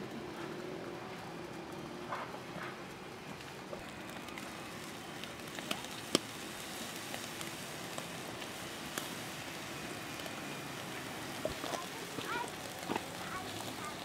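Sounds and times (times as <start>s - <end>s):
fish sizzling on grill: 0.0s - 14.0s
small crackles: 0.0s - 14.0s.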